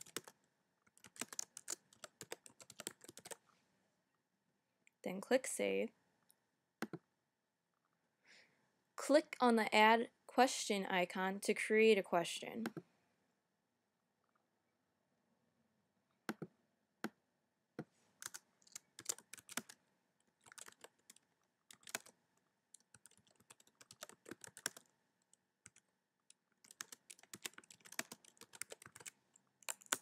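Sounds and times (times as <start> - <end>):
typing on computer keyboard: 0.0 - 3.4, 18.2 - 19.8, 20.4 - 24.9, 25.6 - 25.9, 26.6 - 30.0.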